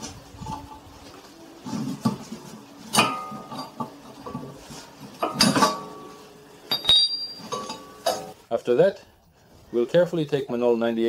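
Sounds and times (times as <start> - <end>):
metal clinking and knocking: 6.7 - 8.3.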